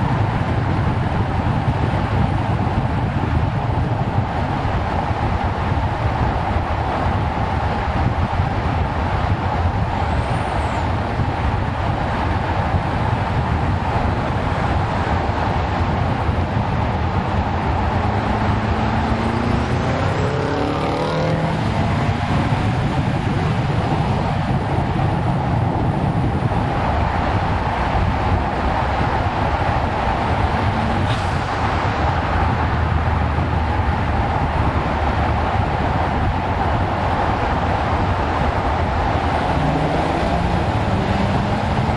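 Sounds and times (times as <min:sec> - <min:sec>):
wind rush: 0:00.0 - 0:41.9
car engine revving: 0:14.5 - 0:24.6, 0:28.8 - 0:41.9.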